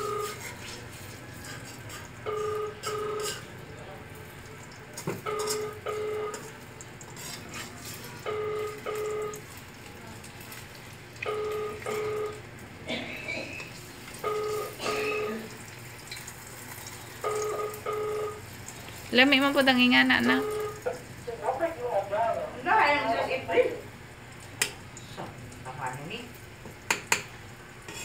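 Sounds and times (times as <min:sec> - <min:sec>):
telephone double-beep ringing: 0:00.0 - 0:00.3, 0:02.3 - 0:03.4, 0:05.2 - 0:06.4, 0:08.3 - 0:09.4, 0:11.2 - 0:12.4, 0:14.2 - 0:15.5, 0:17.2 - 0:18.4, 0:19.8 - 0:20.8
egg sizzling in oil: 0:13.6 - 0:17.8, 0:18.4 - 0:19.6.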